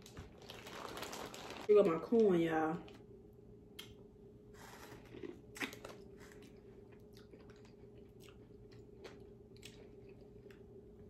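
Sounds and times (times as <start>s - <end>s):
person chewing corn: 4.5s - 11.0s.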